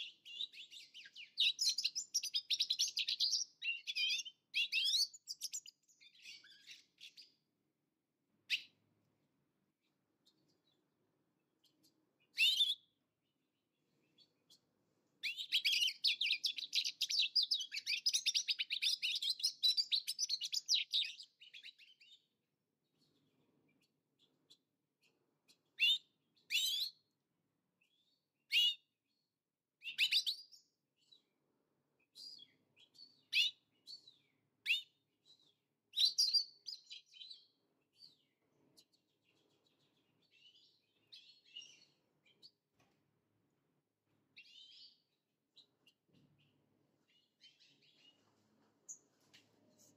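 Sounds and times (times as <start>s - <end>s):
finches twittering song: 0.0s - 7.4s, 14.1s - 22.4s, 32.1s - 42.6s.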